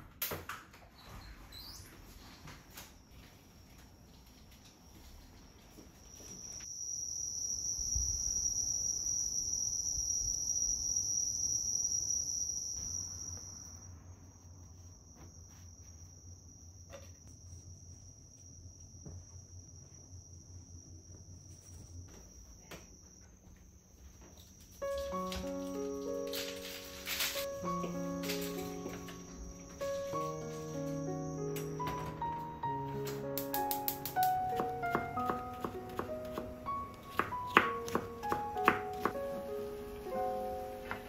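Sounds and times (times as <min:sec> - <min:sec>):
insects trilling: 0:06.1 - 0:41.0.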